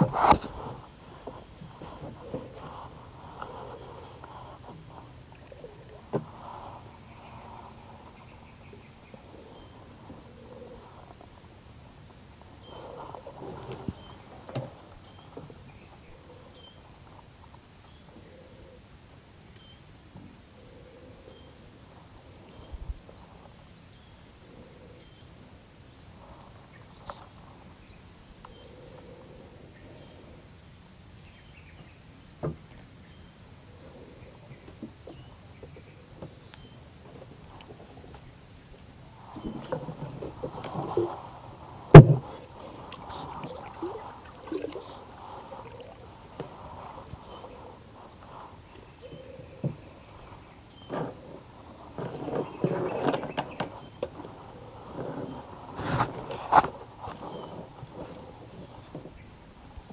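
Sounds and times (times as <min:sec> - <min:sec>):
insects droning: 0:00.0 - 0:59.9
faint knocks: 0:41.9 - 0:44.9.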